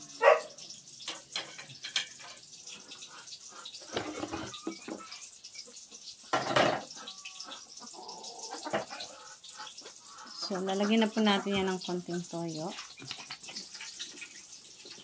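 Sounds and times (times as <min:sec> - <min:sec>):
kitchenware knocks and scrapes: 0:01.0 - 0:02.4, 0:03.9 - 0:05.2, 0:06.3 - 0:06.9
kitchenware clatter: 0:01.0 - 0:07.7, 0:08.4 - 0:12.0, 0:12.6 - 0:15.0.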